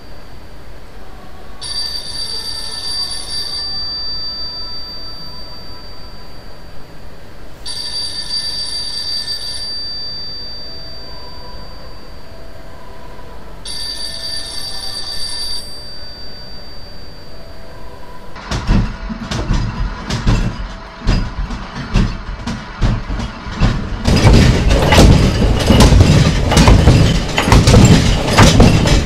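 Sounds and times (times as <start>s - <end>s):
telephone bell ringing: 1.6s - 6.7s, 7.6s - 12.6s, 13.7s - 18.2s
loud irregular knocks and rattles: 18.4s - 29.0s.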